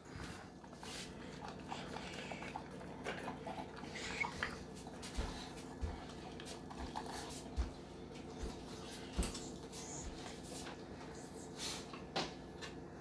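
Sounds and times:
dog chewing and lapping: 0.1 - 11.2.

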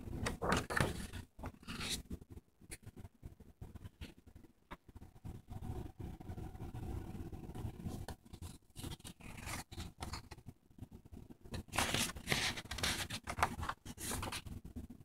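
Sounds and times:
paper pages rustling: 0.2 - 2.1, 8.3 - 10.4, 11.5 - 14.6.

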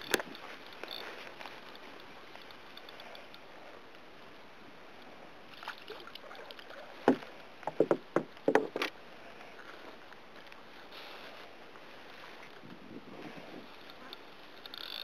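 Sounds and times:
knocks on kayak hull: 7.1 - 8.9.

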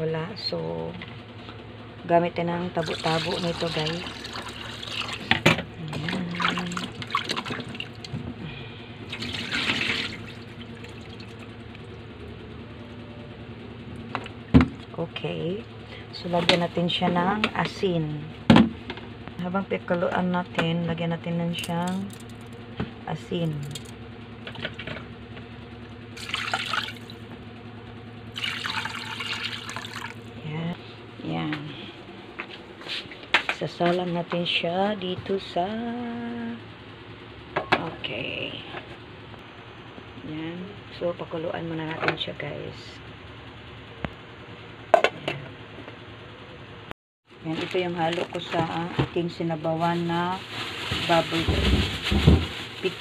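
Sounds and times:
steady low hum: 0.0 - 53.0
water pouring and splashing: 2.8 - 8.1, 9.1 - 11.5, 26.2 - 27.2, 28.4 - 30.2
water trickling into sink: 28.4 - 30.2.

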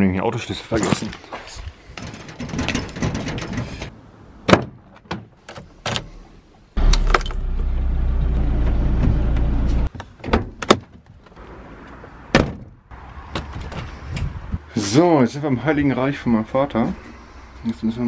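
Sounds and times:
car engine starting and idling: 6.8 - 9.9.

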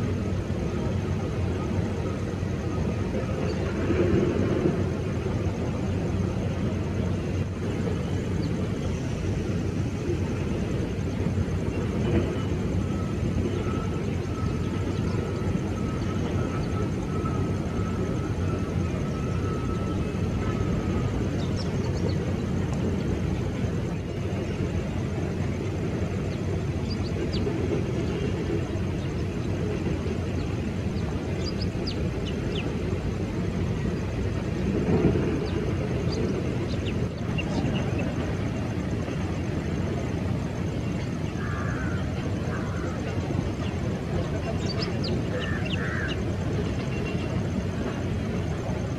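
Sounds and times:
distant jet engines rumbling: 0.0 - 48.9.

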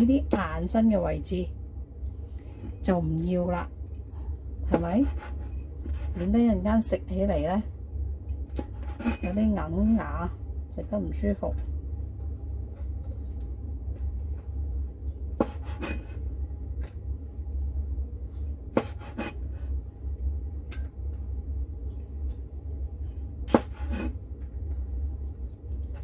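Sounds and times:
low hum: 0.0 - 26.0
knife chopping on wooden board: 15.4 - 16.0, 18.7 - 19.4, 23.5 - 24.1.

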